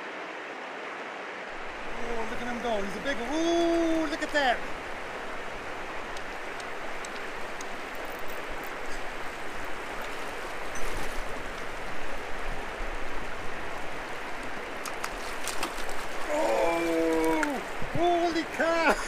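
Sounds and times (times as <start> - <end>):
creek rushing over stones: 0.0 - 19.0
fish splashing: 13.9 - 17.8.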